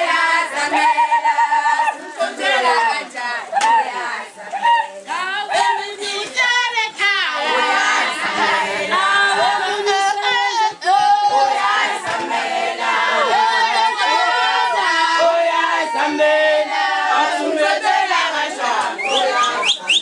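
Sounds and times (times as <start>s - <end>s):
crowd singing unaccompanied: 0.0s - 20.0s
people shouting: 12.8s - 17.4s.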